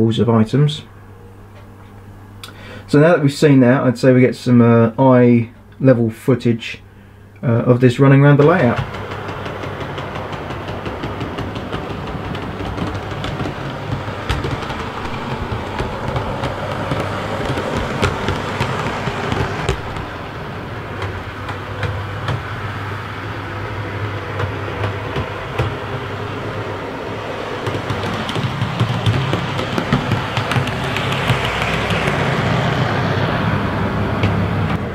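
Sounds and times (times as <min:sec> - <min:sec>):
wheels clicking over rail joints: 0:07.5 - 0:34.9
model train motor hum: 0:08.4 - 0:34.8.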